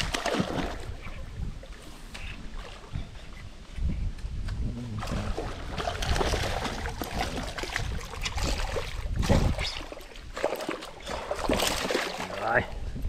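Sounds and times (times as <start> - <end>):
water splashing: 0.0 - 3.0, 4.8 - 12.8.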